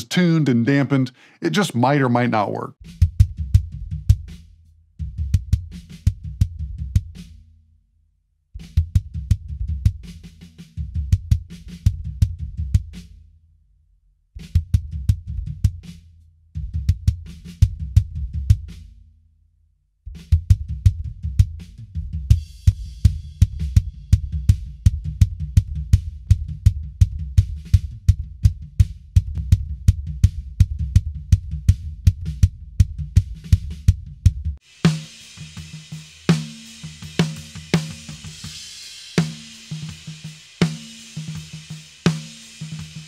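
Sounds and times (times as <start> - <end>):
drum kit playing: 34.6 - 43.0.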